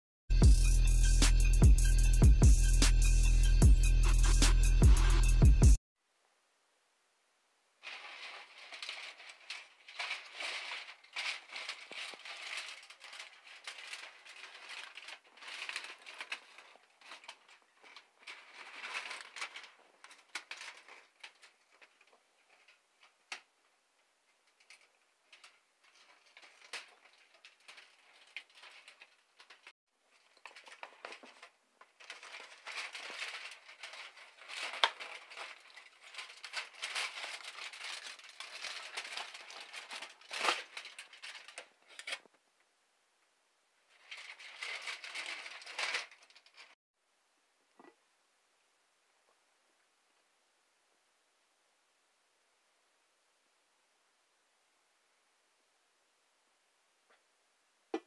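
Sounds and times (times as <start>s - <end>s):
aluminium foil crinkling: 7.8s - 23.5s, 24.4s - 42.4s, 43.9s - 46.8s.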